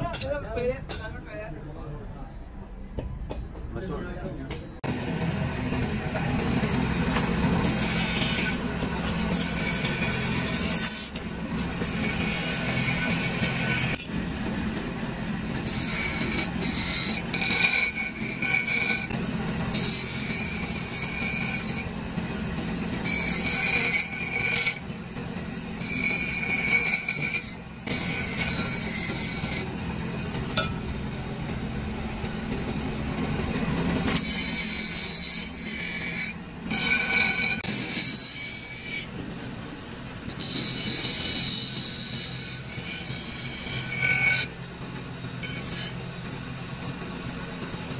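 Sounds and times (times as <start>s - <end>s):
bench grinder humming: 4.8s - 47.9s
squealing metal grinding: 6.9s - 14.2s, 15.6s - 22.0s, 22.9s - 25.0s, 25.7s - 30.8s, 33.4s - 39.1s, 40.2s - 44.6s, 45.2s - 46.1s.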